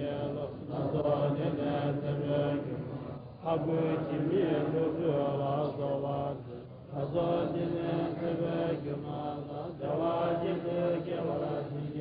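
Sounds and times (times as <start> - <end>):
monks chanting in low voices: 0.0 - 12.0.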